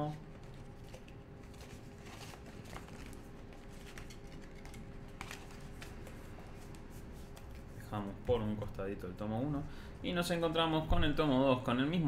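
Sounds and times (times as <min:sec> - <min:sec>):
paper pages rustling: 0:00.0 - 0:08.6
faint steady hum: 0:00.0 - 0:12.0.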